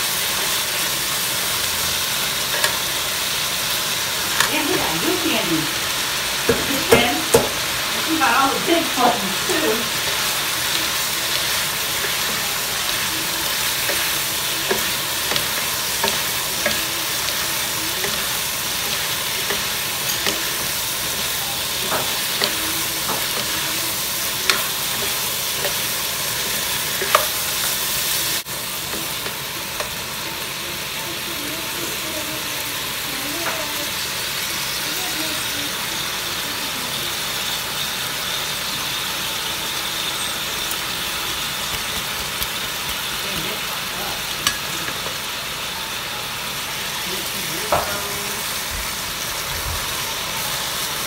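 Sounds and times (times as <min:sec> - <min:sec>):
stir-fry sizzling in a wok: 0:00.0 - 0:51.0
spatula scraping pan: 0:06.5 - 0:30.0.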